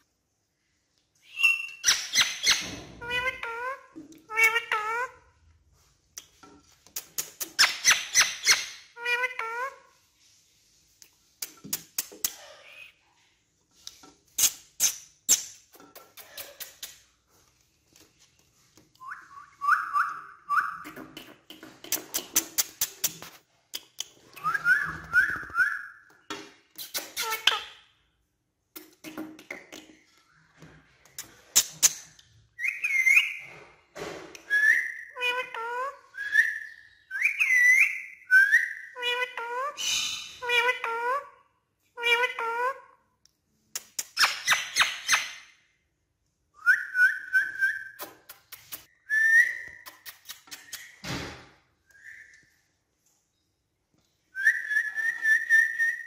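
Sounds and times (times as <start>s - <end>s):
parrot whistling and chirping: 1.2s - 5.1s, 7.6s - 9.8s, 19.0s - 20.9s, 24.3s - 26.1s, 32.6s - 33.5s, 34.4s - 41.3s, 46.6s - 48.1s, 48.9s - 51.1s, 51.9s - 52.6s, 54.3s - 56.0s.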